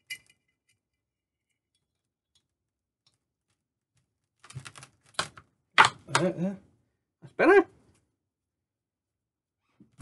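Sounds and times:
glass clink: 0.0 - 0.8
wire tapping glass bottle: 0.0 - 3.2.

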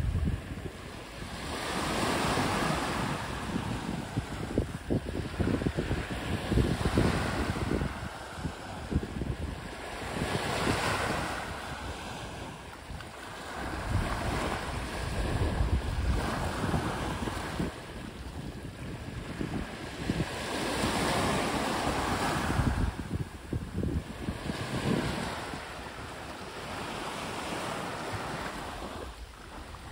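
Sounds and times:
wind buffeting microphone: 0.0 - 29.9
waves breaking on pebbly beach: 18.5 - 29.9.

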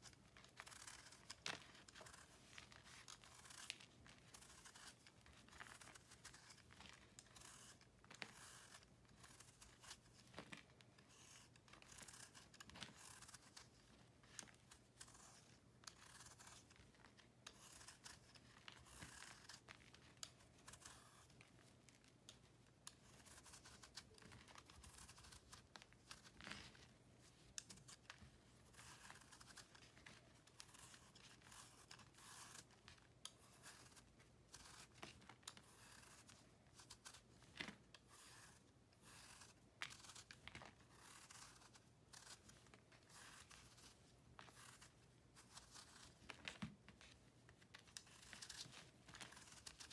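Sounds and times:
blade scraping chalky block: 0.0 - 10.2, 11.0 - 13.7, 14.5 - 16.7, 17.4 - 19.7, 20.5 - 21.3, 22.9 - 26.4, 27.6 - 37.2, 37.9 - 46.2.

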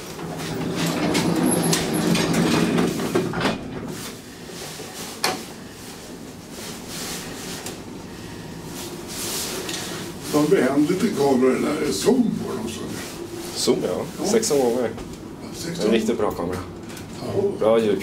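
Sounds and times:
elevator door sliding closed: 0.0 - 4.0
mechanical hum: 0.0 - 18.0
quiet steady running sound: 3.8 - 18.0.

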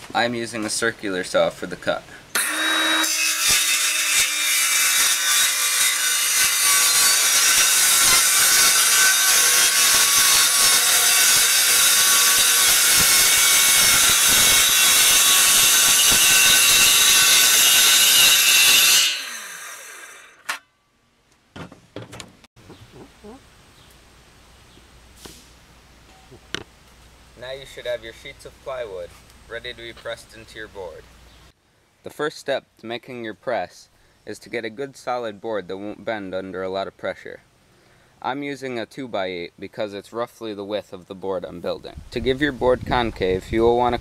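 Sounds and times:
circular saw cutting plywood: 2.4 - 20.6
saw blade winding down: 2.4 - 20.6.

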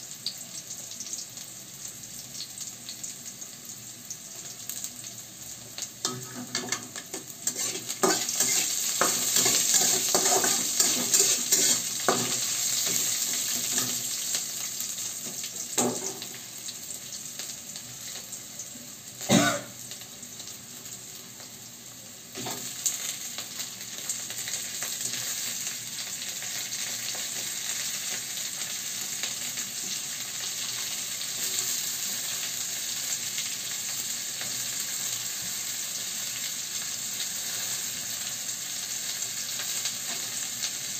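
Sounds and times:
onion sizzling in hot oil: 0.0 - 40.9
metal spatula scraping pan: 6.1 - 13.0.

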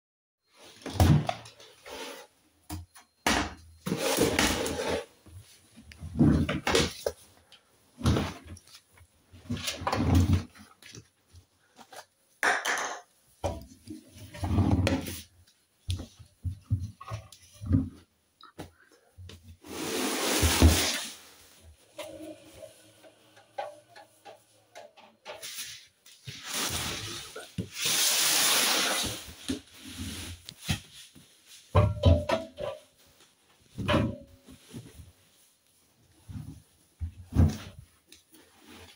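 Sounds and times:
laundry rustling: 19.4 - 38.9.

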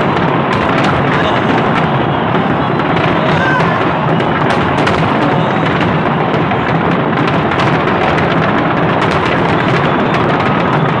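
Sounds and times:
fireworks bangs and crackling: 0.0 - 11.0.

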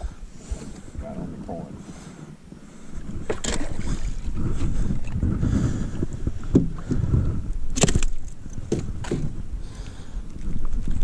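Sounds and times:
wind rumble on microphone: 0.0 - 11.0
water splashing: 3.2 - 5.3.

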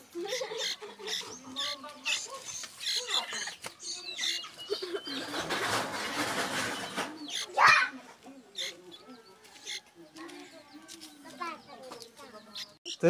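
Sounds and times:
chicks squeaky begging calls: 0.0 - 13.0.

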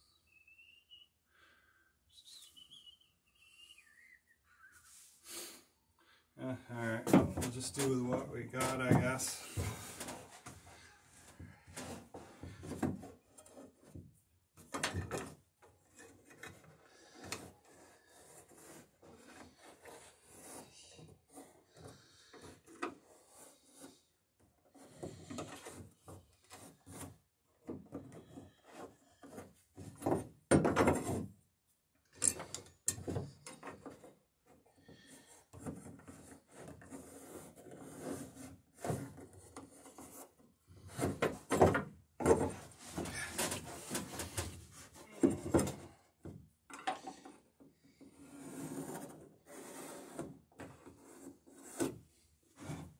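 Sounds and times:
pencil scraping on wood: 15.9 - 27.3, 28.0 - 29.9, 33.4 - 41.2, 47.3 - 52.9
rubbing on wood: 17.0 - 24.1, 34.9 - 41.5.

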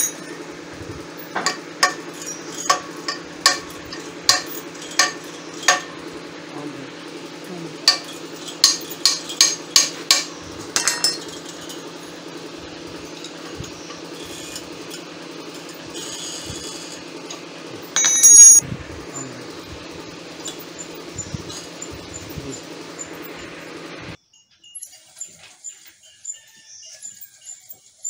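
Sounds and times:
metallic clank with ringing: 0.0 - 0.5, 1.4 - 6.0, 7.9 - 11.8, 18.0 - 18.6
steady low hum: 0.0 - 24.2
spanner tapping on metal nut: 1.4 - 6.0, 7.9 - 11.4, 18.0 - 18.6.

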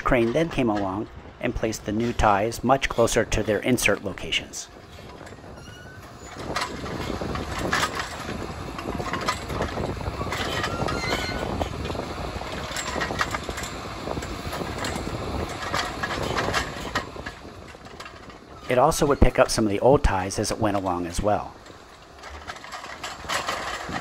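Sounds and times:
crane engine running: 0.0 - 24.0
thin squeal: 5.6 - 6.4, 10.2 - 11.5
knocks and clanks of grapple: 6.2 - 19.4, 22.1 - 24.0.

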